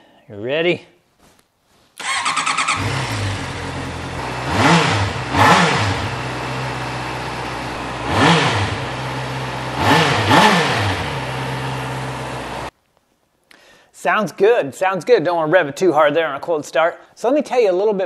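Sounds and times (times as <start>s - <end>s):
engine revving: 2.0s - 12.7s
motorcycle engine idling: 2.0s - 12.7s.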